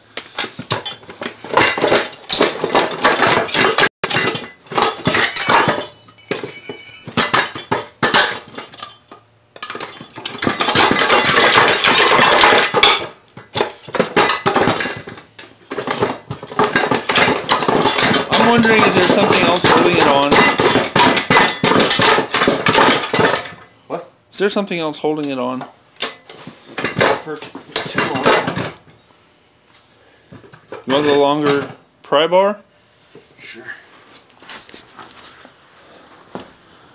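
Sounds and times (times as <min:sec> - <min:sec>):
tools clattering: 0:00.4 - 0:23.6.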